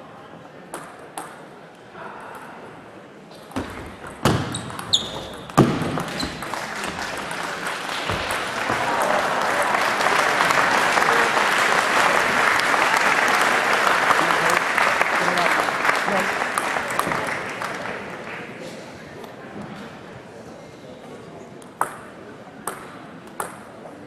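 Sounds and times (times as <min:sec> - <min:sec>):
audience applause: 0:06.0 - 0:18.6.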